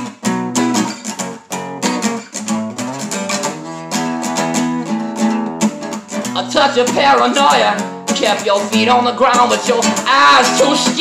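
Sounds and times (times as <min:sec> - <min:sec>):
acoustic guitar strumming: 0:00.0 - 0:11.0
person singing: 0:06.3 - 0:11.0.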